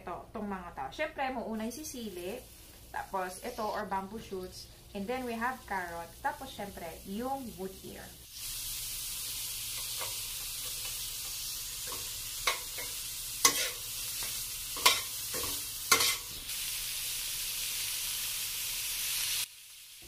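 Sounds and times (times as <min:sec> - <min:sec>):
vegetables sizzling in hot oil: 0:01.8 - 0:20.0
metal spatula scraping wok: 0:09.7 - 0:16.5.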